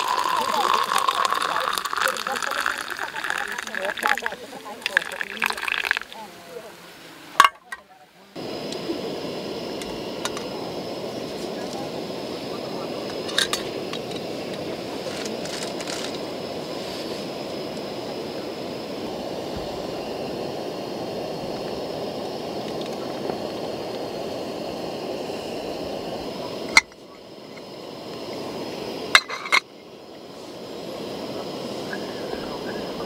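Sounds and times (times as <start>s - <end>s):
gas stove burner hissing: 0.0s - 33.0s.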